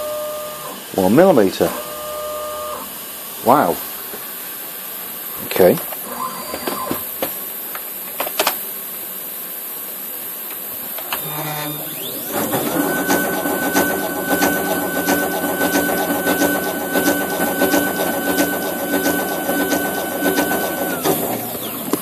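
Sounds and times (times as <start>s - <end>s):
high-pitched motor whine: 0.0s - 3.8s, 9.3s - 22.0s.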